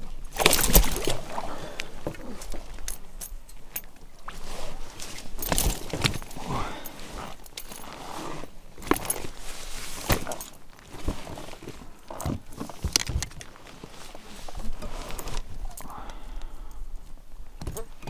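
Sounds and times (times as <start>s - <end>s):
fish thrashing against boat: 0.3s - 2.2s.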